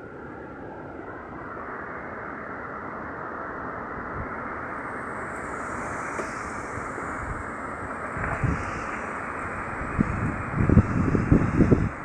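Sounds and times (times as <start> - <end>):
wind rushing through leaves: 0.0 - 12.0
wind gust buffeting microphone: 3.9 - 12.0.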